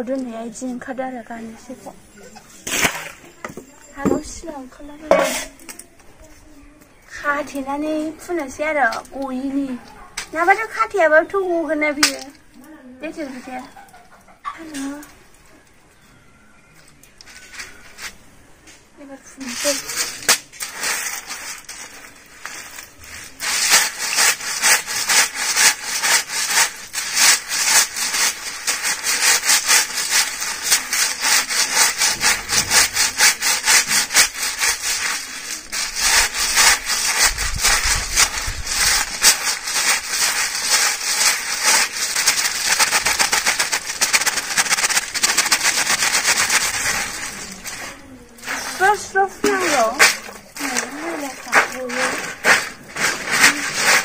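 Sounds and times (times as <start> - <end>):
cloth scrubbing on rough stone: 2.6 - 5.6, 19.4 - 54.0.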